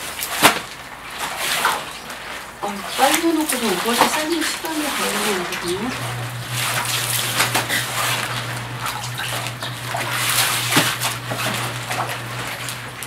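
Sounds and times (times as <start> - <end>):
water sloshing and splashing: 0.0 - 13.0
steady low hum: 2.7 - 13.0.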